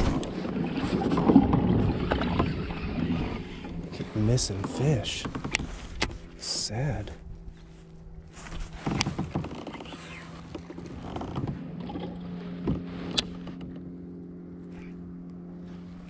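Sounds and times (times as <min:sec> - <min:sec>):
boat engine droning: 0:00.0 - 0:16.0
fishing rod rustling: 0:07.4 - 0:11.4.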